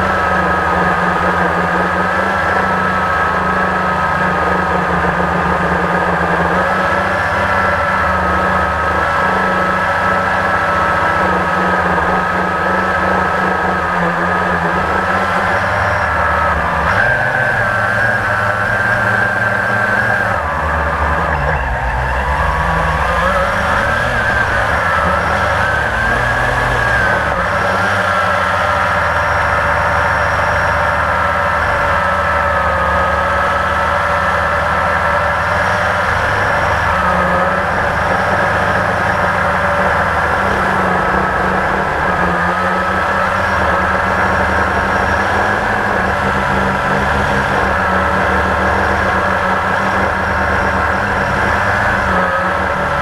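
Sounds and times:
quadcopter motors whining: 0.0 - 53.0.

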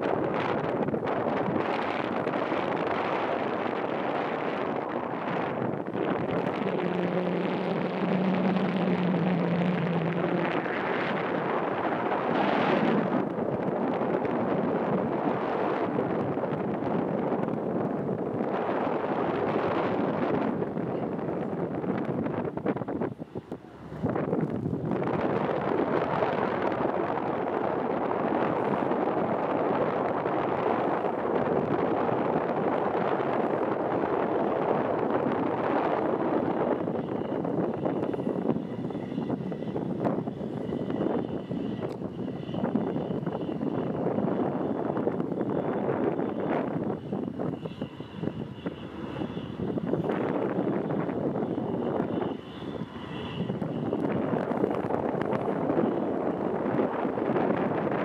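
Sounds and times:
wind buffeting microphone: 0.0 - 58.0
motorboat engine running: 0.1 - 43.6.

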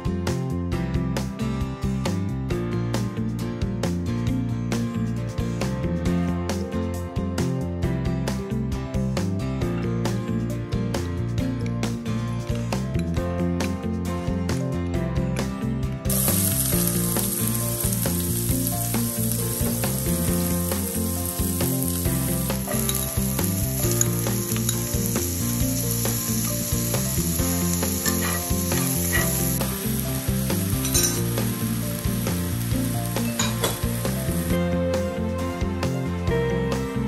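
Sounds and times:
food sizzling in a pan: 16.1 - 34.6.

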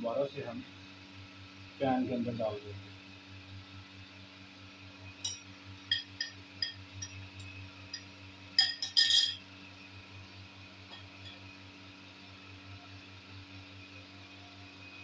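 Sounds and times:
steady low hum: 0.0 - 15.0
spoon clinking against glass bowl: 5.2 - 7.2, 7.9 - 9.4.

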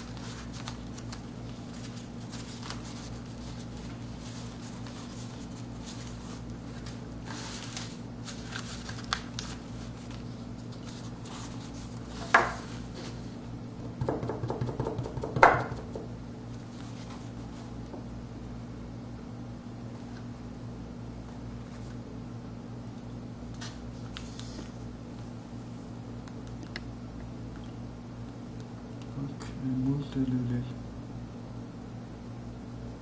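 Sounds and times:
paper rustling: 0.0 - 13.4, 23.6 - 24.8
hard object knocking on table: 14.0 - 16.1.

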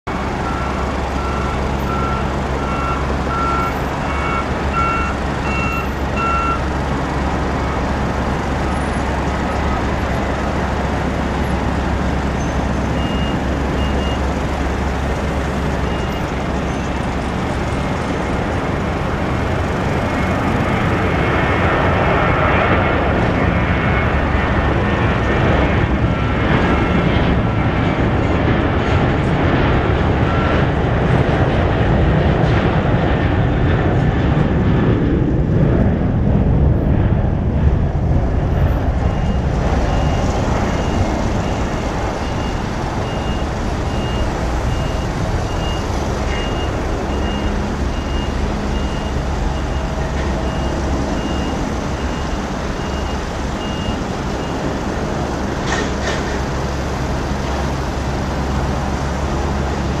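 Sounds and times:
jet engine roar: 0.1 - 60.0
repeated high beep: 0.4 - 6.7, 12.4 - 14.2, 39.1 - 41.6, 42.2 - 49.8.

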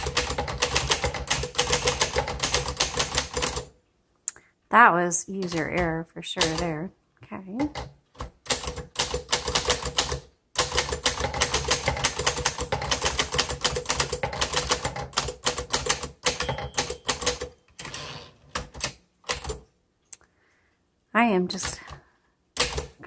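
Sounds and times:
manual typewriter typing: 0.0 - 3.7, 5.4 - 6.8, 7.6 - 19.6, 22.6 - 23.0.

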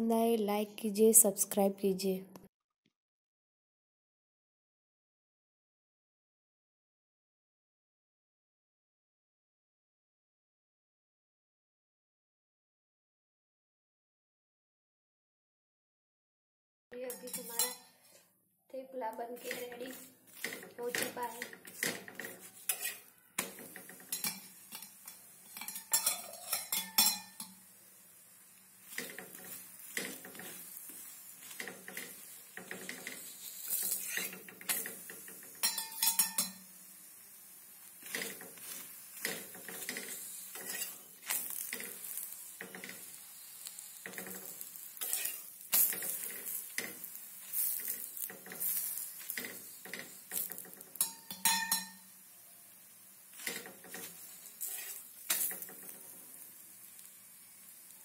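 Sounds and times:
faint sizzling: 17.0 - 58.0
metal spatula scraping a griddle: 17.1 - 18.2, 19.4 - 27.6, 28.8 - 52.1, 53.3 - 57.5.

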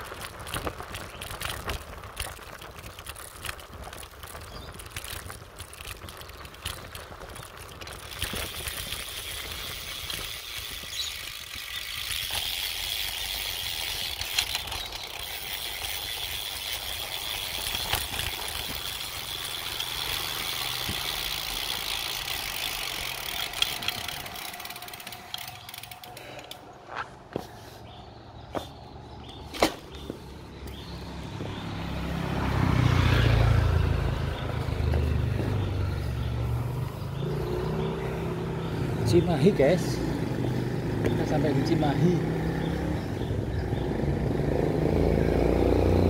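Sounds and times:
freewheel ratchet buzzing: 0.0 - 26.7
tyre noise on road: 0.0 - 46.0
wind: 0.0 - 46.0.

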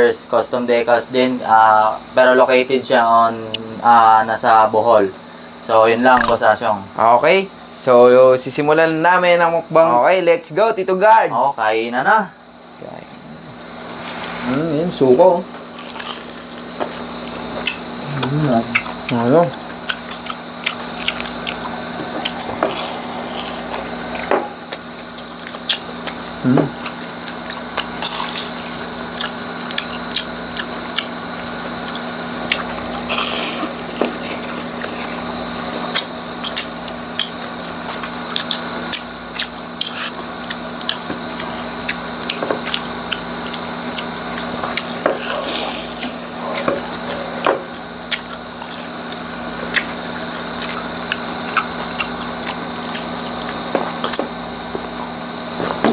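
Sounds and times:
crunching and chewing crisp food: 13.6 - 55.9
crisp food tearing by hand: 15.6 - 18.3.

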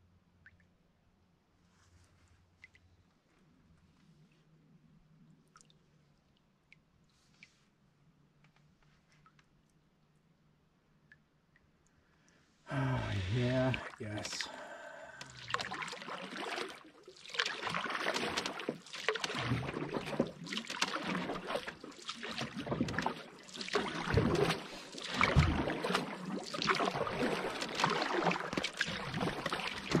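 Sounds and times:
paddle splashing water: 12.8 - 30.0.

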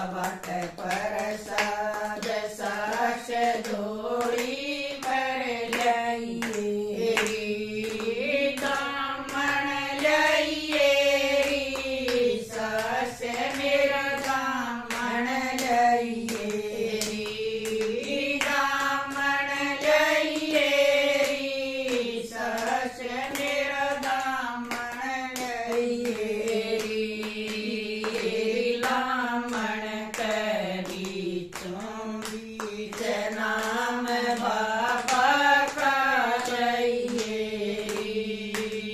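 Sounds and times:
steady hand-clapping: 0.0 - 38.9
women singing devotional song: 0.0 - 38.9.

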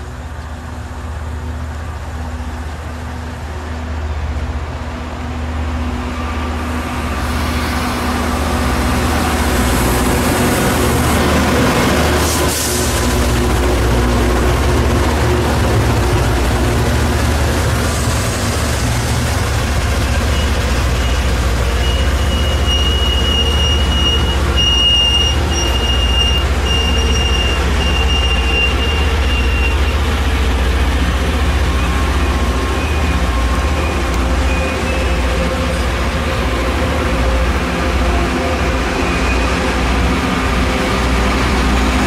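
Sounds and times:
train rumbling on rails: 0.0 - 42.0.

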